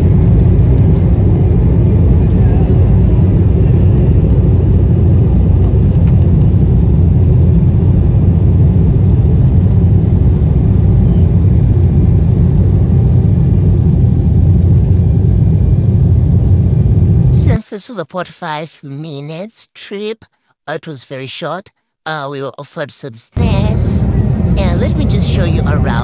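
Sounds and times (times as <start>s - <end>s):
airflow along fuselage: 0.0s - 17.6s, 23.4s - 26.0s
jet engines rumbling: 0.0s - 17.6s, 23.4s - 26.0s.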